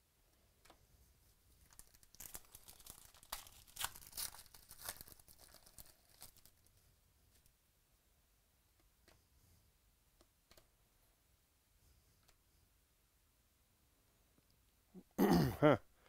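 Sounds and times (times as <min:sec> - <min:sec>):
foil wrapper tearing and crinkling: 0:01.6 - 0:06.7.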